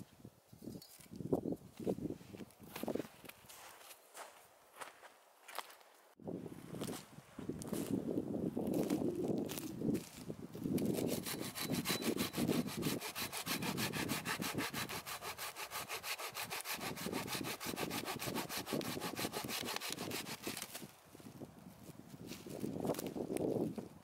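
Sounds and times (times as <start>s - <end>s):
hand saw cutting log: 10.8s - 20.8s.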